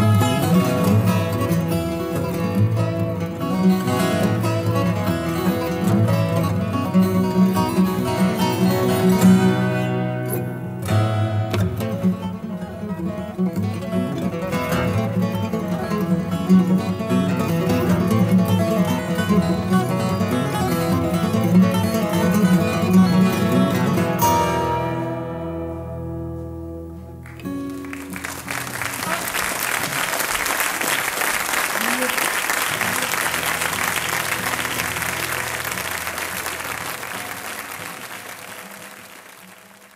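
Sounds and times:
acoustic guitar duet: 0.0 - 39.9
audience applauding: 27.2 - 39.9.

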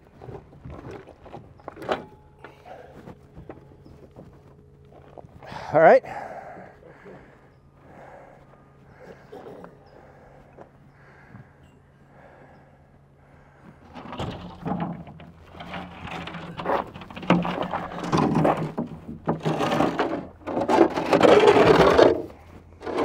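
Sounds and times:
wooden blocks scraping and knocking: 13.9 - 23.0.

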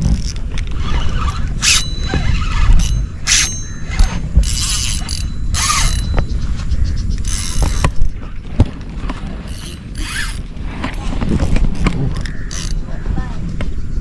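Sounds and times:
spinning reel being cranked: 0.2 - 6.2, 7.2 - 7.9, 12.2 - 12.8.

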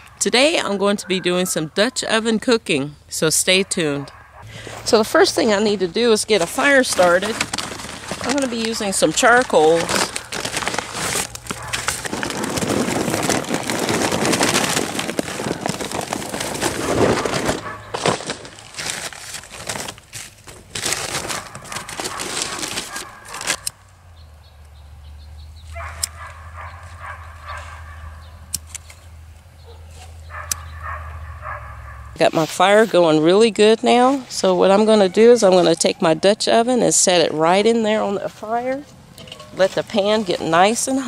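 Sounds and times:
charcoal briquettes clattering: 4.5 - 23.7, 38.3 - 41.0
newspaper crumpling and rustling: 5.2 - 23.7.

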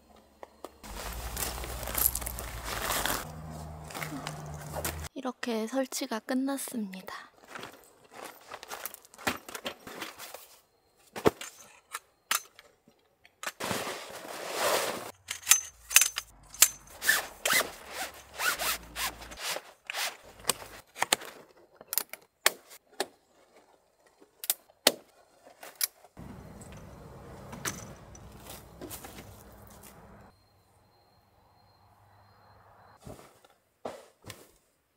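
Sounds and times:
fabric rustling: 0.8 - 5.1, 17.0 - 20.8
zipper: 0.9 - 3.3, 16.9 - 20.8.

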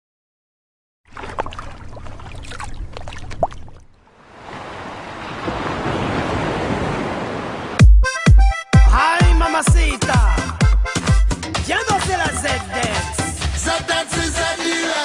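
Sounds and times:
ocean waves washing in: 4.1 - 7.8.

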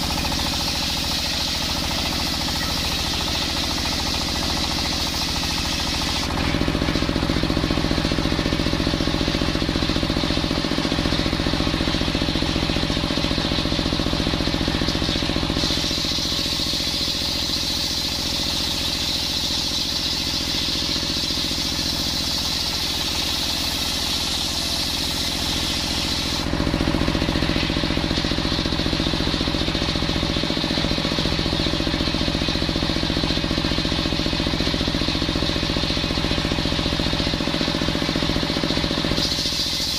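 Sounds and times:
machine drone: 0.0 - 39.9
saw blade ripping wood: 39.1 - 39.9.

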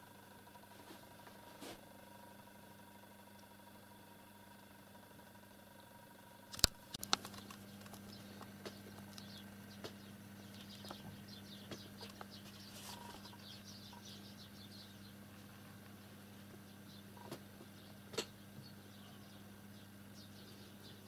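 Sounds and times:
sharp click: 6.5 - 7.6.

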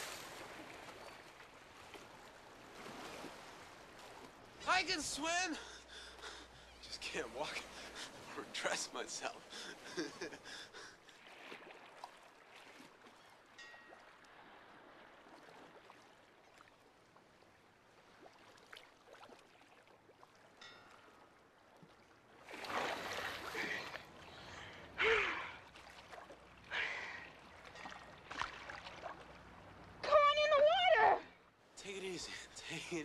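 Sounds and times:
faint water ambience: 0.0 - 33.0
breathy gasps at water surface: 23.4 - 25.6.

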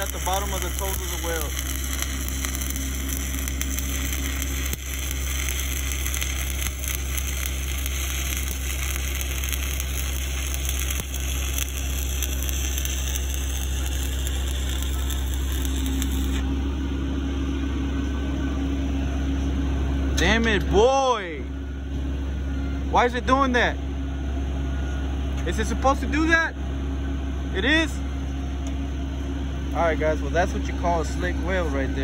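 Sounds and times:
welding arc burning: 0.0 - 16.5
engine drone: 0.0 - 32.0.

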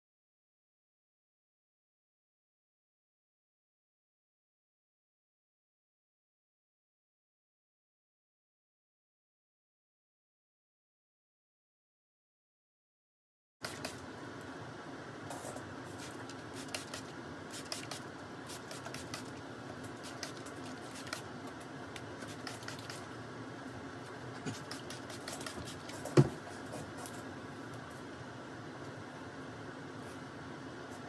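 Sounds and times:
room hum: 13.6 - 31.0.

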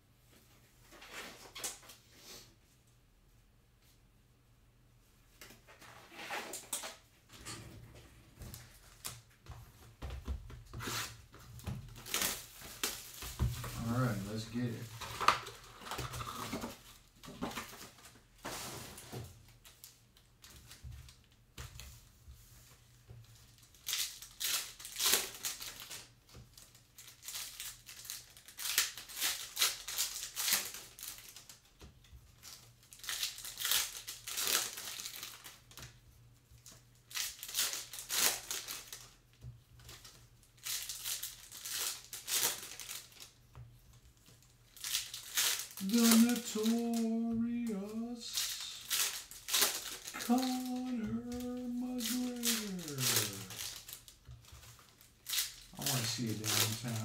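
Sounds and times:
foil wrappers crinkling: 11.8 - 21.2, 23.3 - 36.0, 36.6 - 57.0.

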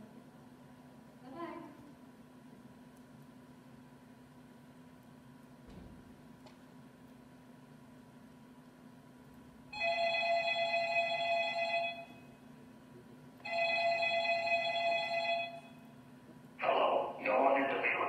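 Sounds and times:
telephone ringing: 9.7 - 12.3, 13.4 - 15.9.

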